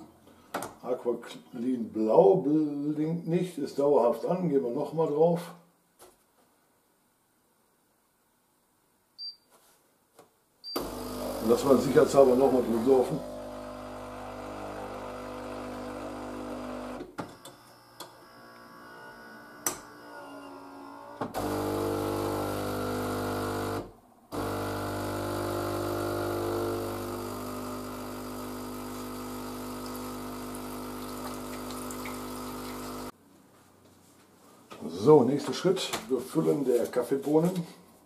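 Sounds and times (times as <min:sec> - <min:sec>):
coffee machine pump humming: 0:10.8 - 0:17.1, 0:21.4 - 0:33.1.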